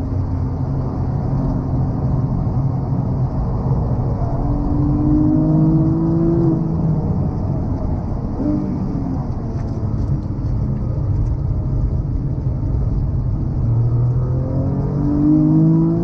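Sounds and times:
car engine revving: 0.0 - 16.0
road noise: 0.0 - 16.0.

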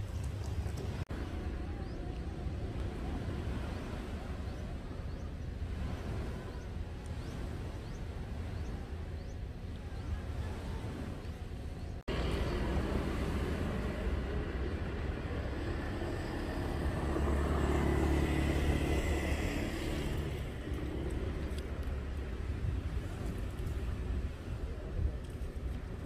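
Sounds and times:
passing cars and motorbikes: 12.0 - 24.0
vehicle passing close: 12.1 - 22.5.

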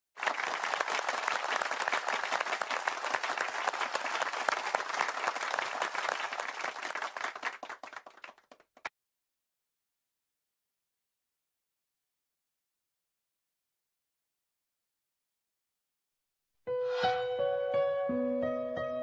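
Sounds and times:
crowd applauding: 0.2 - 8.9.

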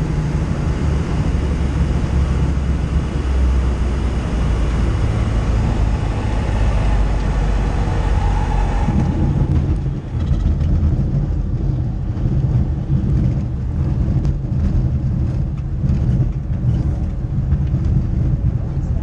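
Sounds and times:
plane rolling on gravel rumble: 0.0 - 19.0.

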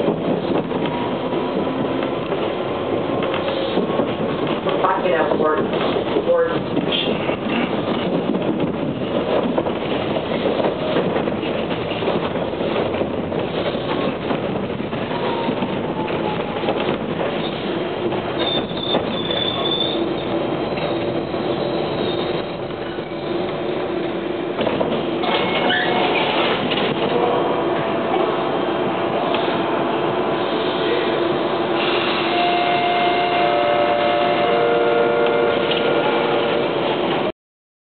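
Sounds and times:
subway car wheels rumbling: 0.0 - 37.3
high wheel squeal: 18.4 - 23.3, 25.4 - 26.3.

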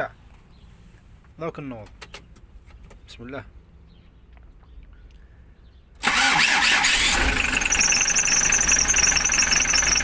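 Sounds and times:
diesel engine running: 6.0 - 10.0.

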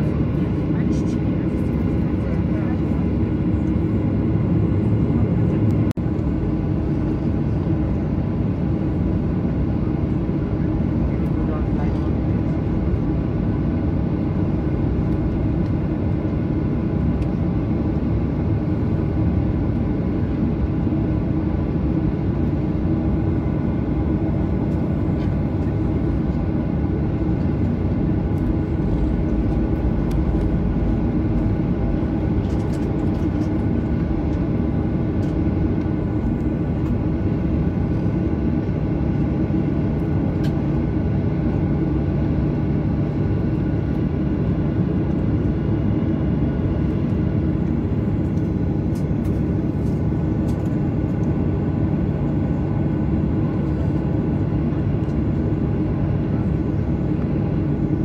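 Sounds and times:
jet engine cabin noise: 0.0 - 58.0.

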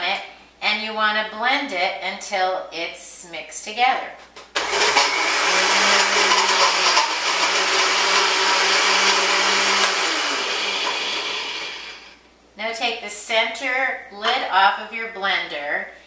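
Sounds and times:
blender running: 4.6 - 12.2.

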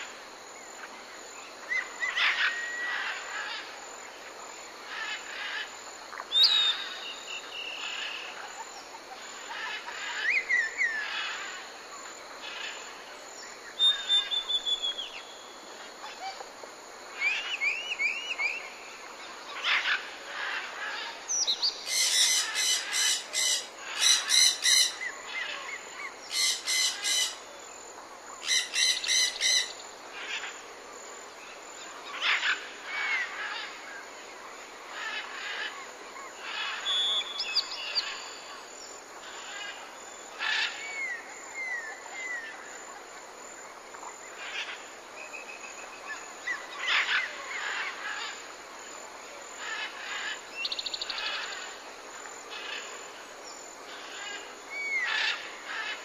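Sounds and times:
birds chirping and whistling: 13.8 - 15.3.

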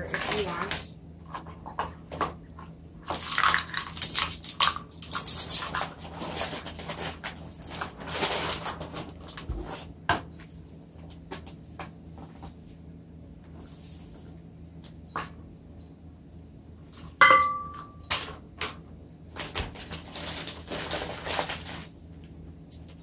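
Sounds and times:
paper bag rustling: 0.0 - 0.9, 5.9 - 9.9, 19.3 - 22.1.

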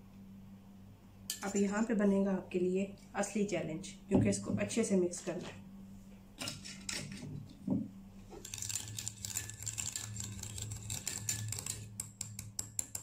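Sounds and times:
steady low hum: 0.0 - 13.0
metal spoon whisking in bowl: 8.4 - 13.0.

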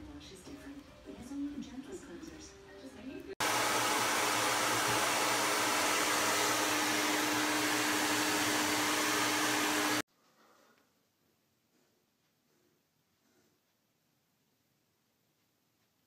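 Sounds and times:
hair dryer blowing: 3.4 - 10.1.

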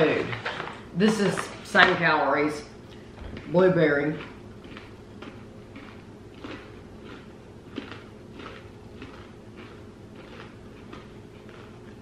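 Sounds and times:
pretzel crunching: 3.4 - 12.0.

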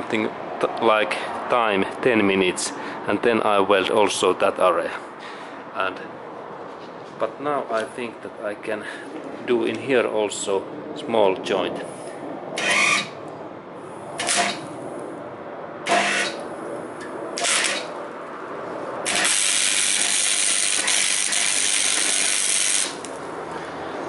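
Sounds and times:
welding arc hissing: 15.9 - 16.4, 17.4 - 17.9, 19.1 - 23.2.

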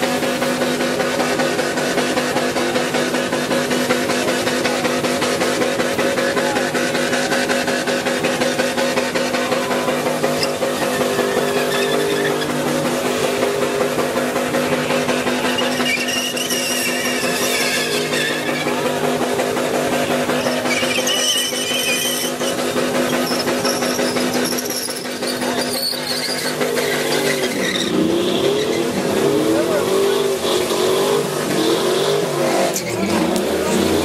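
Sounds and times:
engine revving at redline: 0.0 - 34.0
tyre squeal: 9.8 - 13.3, 14.7 - 19.0, 20.2 - 29.4, 31.6 - 34.0.

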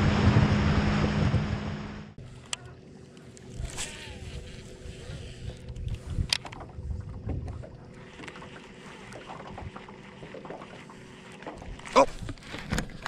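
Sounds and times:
wind buffeting the microphone: 3.6 - 7.9.

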